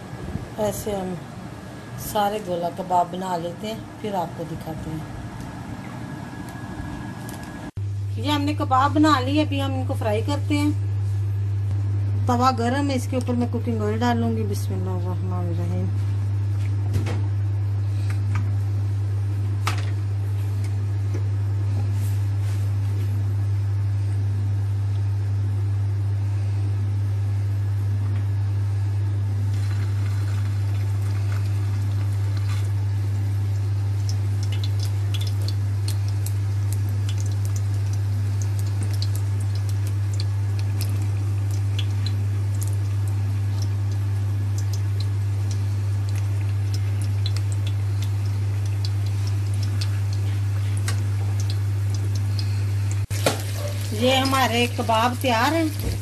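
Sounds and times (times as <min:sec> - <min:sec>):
steady low hum: 0:00.0 - 0:56.0
frying crackles: 0:29.1 - 0:56.0
hot oil sizzling in a pan: 0:29.4 - 0:56.0.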